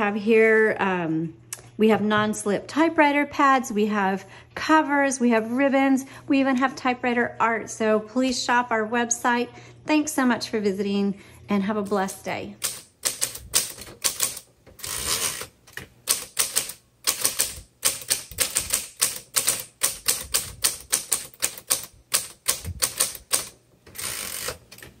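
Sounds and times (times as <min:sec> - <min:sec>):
typewriter key strikes: 0:12.6 - 0:25.0.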